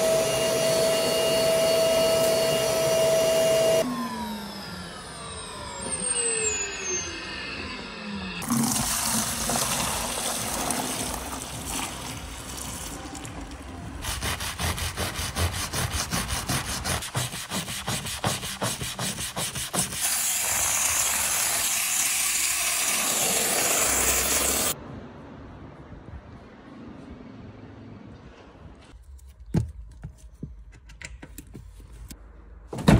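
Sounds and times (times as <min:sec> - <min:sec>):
dirty water tipped out rushing: 0:08.4 - 0:13.8
stiff brush scrubbing rubber mat: 0:09.4 - 0:21.6
steam cleaner jet hissing: 0:16.4 - 0:24.8.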